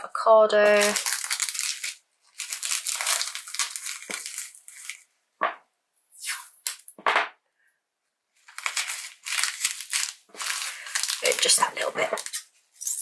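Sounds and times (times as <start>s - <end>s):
bubble wrap crinkling: 0.5s - 5.1s, 8.4s - 13.0s.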